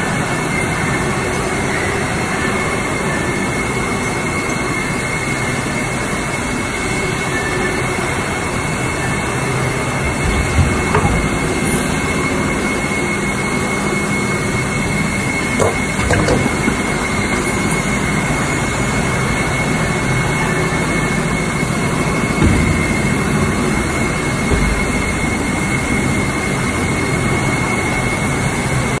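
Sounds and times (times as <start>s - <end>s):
moulding machine whining: 0.0s - 28.6s
short machine knocks: 10.0s - 12.5s, 15.5s - 18.0s.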